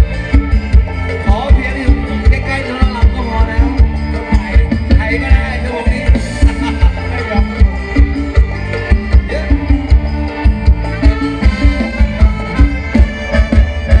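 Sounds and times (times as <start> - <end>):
live band dance music: 0.0 - 14.0.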